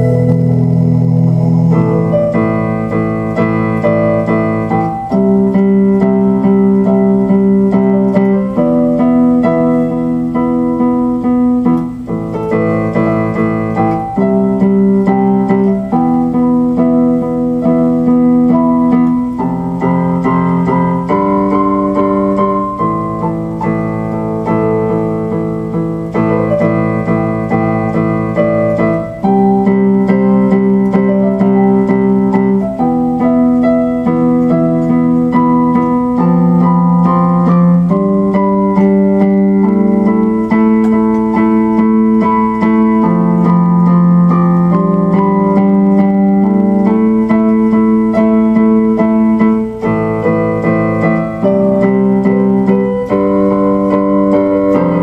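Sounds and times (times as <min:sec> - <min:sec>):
electronic keyboard chords: 0:00.0 - 0:55.0.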